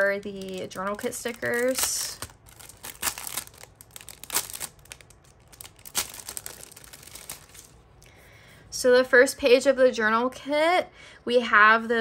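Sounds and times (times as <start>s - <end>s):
plastic sleeve crinkling: 0.0s - 7.9s.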